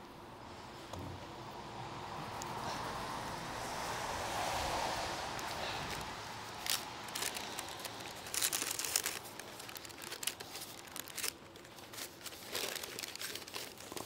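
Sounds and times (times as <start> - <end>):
greaseproof paper crinkling: 5.4 - 14.0.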